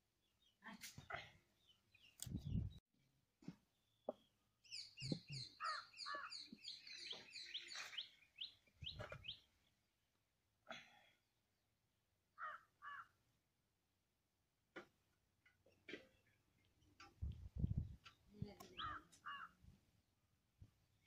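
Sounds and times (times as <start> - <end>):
birds chirping: 3.8 - 9.6, 17.7 - 19.5
lower bird calls: 4.7 - 9.5, 18.8 - 19.5.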